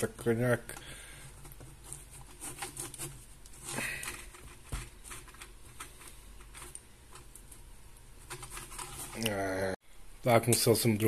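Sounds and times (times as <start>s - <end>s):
handling rustles: 1.2s - 9.5s.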